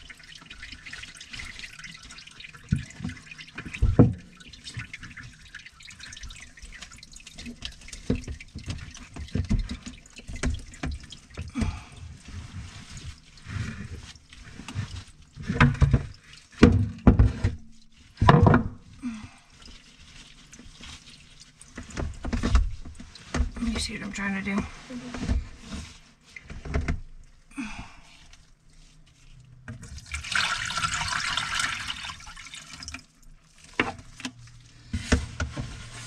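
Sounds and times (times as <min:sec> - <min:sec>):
drain pipes knocking and clunking: 0:00.0 - 0:19.0, 0:21.6 - 0:25.8, 0:26.4 - 0:27.3
water dripping and trickling: 0:00.0 - 0:36.0.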